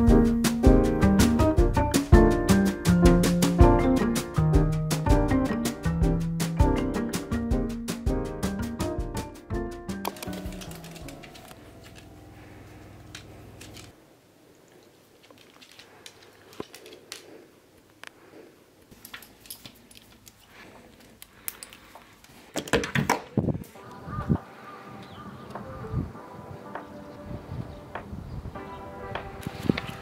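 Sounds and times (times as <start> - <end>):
background music: 0.0 - 11.8, 23.6 - 30.0
soft clicks and rustles: 12.7 - 18.2.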